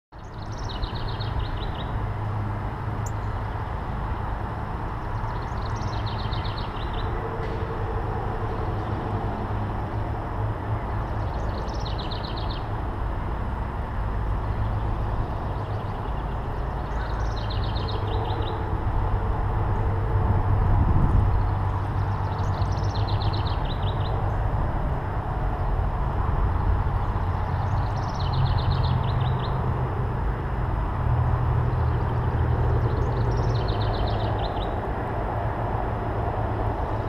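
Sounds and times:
songbird singing: 0:00.1 - 0:12.8, 0:14.4 - 0:19.9, 0:20.6 - 0:24.6, 0:27.0 - 0:29.8, 0:31.6 - 0:35.1.

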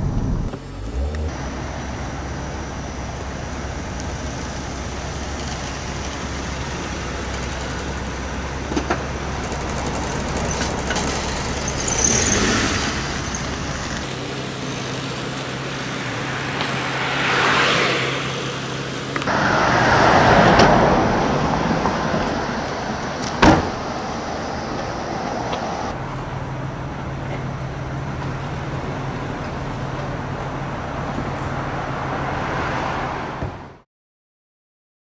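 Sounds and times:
car engine running: 0:00.0 - 0:19.3
street traffic: 0:00.0 - 0:33.8.

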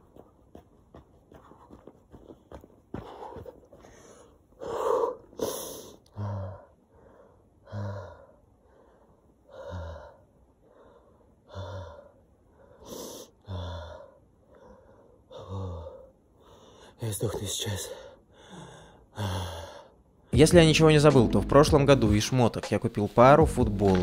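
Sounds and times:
man panting heavily: 0:01.2 - 0:17.0, 0:18.0 - 0:20.0.

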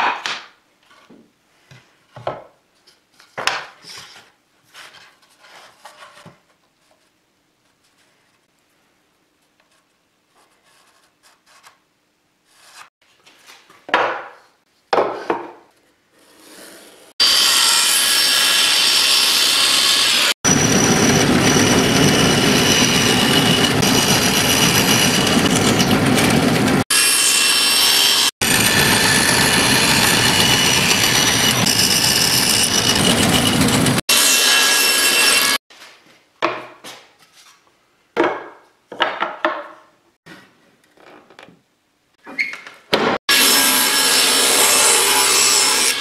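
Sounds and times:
bandsaw cutting wood: 0:17.2 - 0:35.6, 0:43.3 - 0:46.0.

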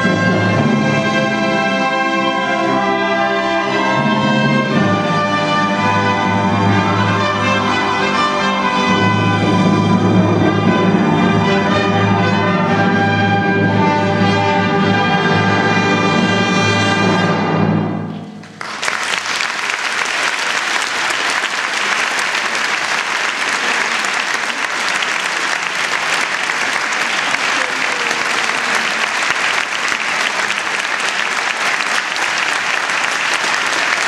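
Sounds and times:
orchestra holding chord: 0:00.0 - 0:17.7
audience applause: 0:18.4 - 0:34.0.

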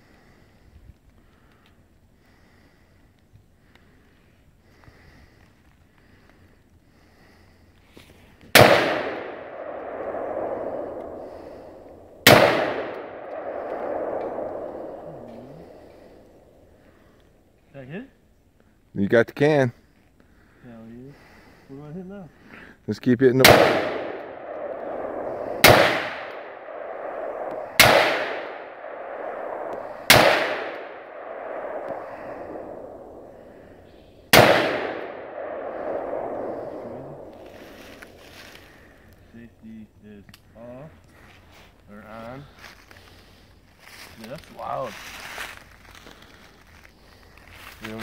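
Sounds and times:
rifle shots: 0:08.5 - 0:16.2, 0:23.3 - 0:38.3
gunshot echo through woods: 0:08.5 - 0:16.5, 0:23.4 - 0:39.1.

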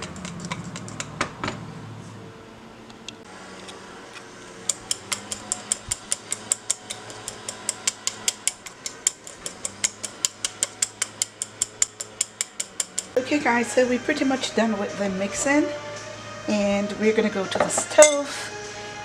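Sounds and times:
whisk clicking against bowl: 0:04.8 - 0:13.2.

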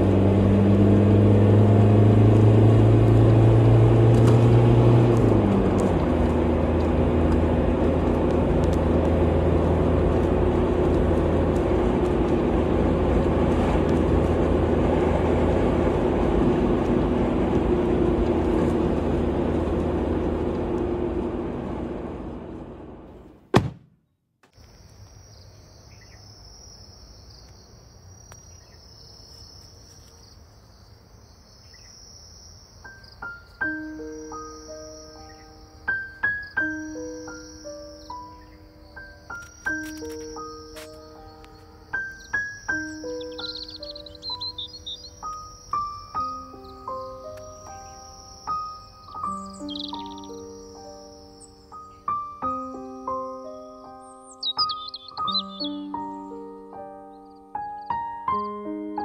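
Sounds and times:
car engine hum and road noise: 0:00.0 - 0:23.8, 0:27.6 - 0:57.1
insects droning: 0:24.5 - 0:59.0.

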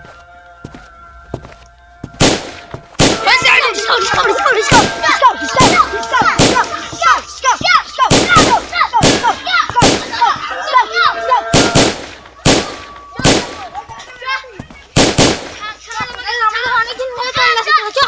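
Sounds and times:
faint music with held tone: 0:00.0 - 0:08.8
loud gunshots with ringing tail: 0:02.2 - 0:03.3, 0:06.4 - 0:06.7, 0:08.1 - 0:10.1, 0:11.5 - 0:13.7, 0:15.0 - 0:15.6.

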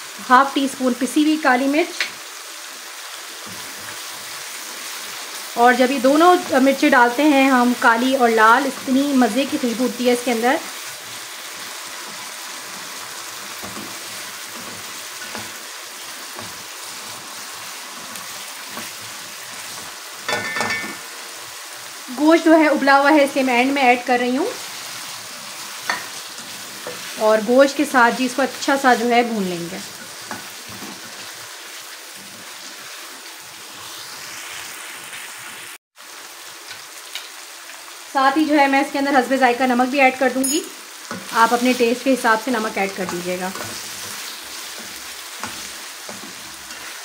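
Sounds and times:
masala sizzling in oil: 0:00.0 - 0:47.0
spatula stirring and scraping: 0:10.7 - 0:21.5, 0:24.6 - 0:27.2, 0:29.8 - 0:33.1, 0:42.9 - 0:47.0.

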